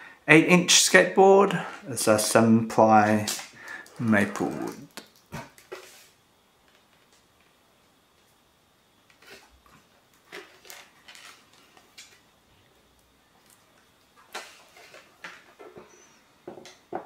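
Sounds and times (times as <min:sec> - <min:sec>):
packaging crinkling: 0:03.1 - 0:06.1, 0:10.1 - 0:12.2.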